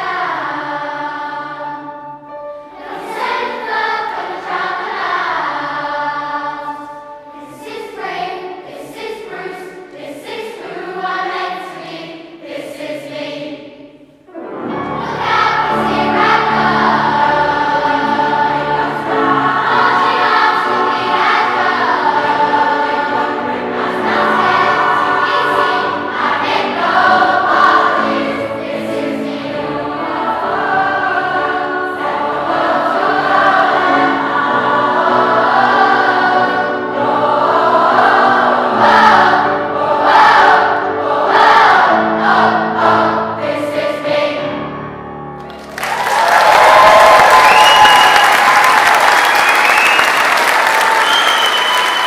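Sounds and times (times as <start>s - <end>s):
choir singing: 0.0s - 45.0s, 45.9s - 52.0s
audience applause: 45.4s - 52.0s.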